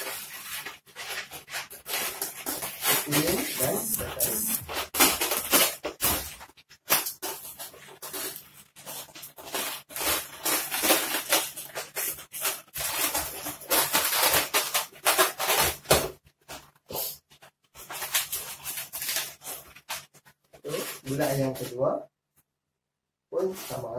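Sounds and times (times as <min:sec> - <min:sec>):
balloons squeaking and rubbing: 0:00.0 - 0:06.4.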